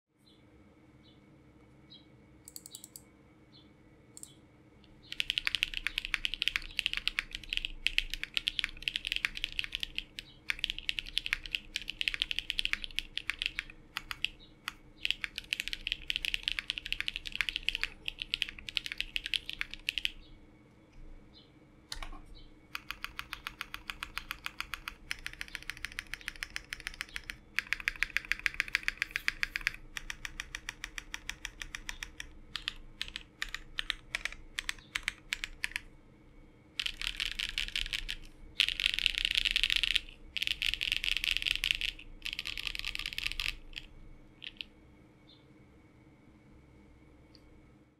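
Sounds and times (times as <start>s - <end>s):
mechanical keyboard typing: 2.5s - 3.0s, 5.0s - 20.2s, 22.7s - 35.9s, 36.8s - 44.7s.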